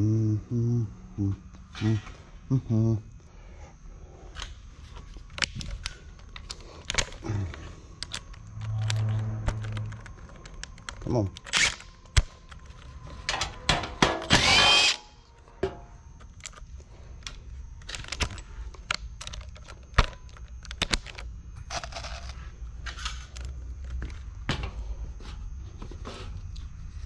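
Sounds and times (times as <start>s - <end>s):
impact driver whining: 14.0s - 15.2s
small clicks and knocks: 16.2s - 22.1s.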